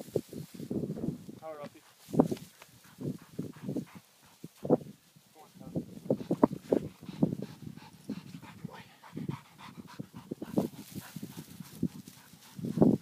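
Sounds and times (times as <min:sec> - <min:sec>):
dog panting: 0:02.7 - 0:04.7, 0:06.1 - 0:13.0.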